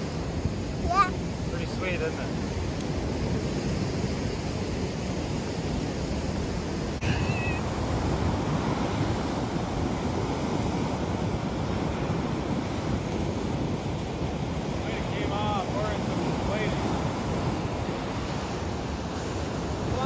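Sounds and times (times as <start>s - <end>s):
ocean surf breaking: 0.0s - 20.0s
high wavering cry: 7.0s - 7.7s.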